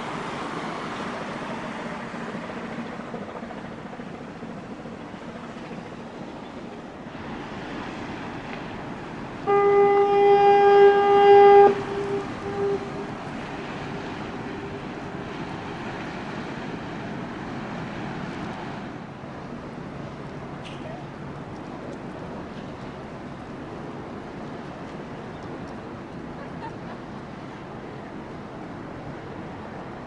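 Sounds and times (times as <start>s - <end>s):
ship's horn blast: 9.4s - 15.7s.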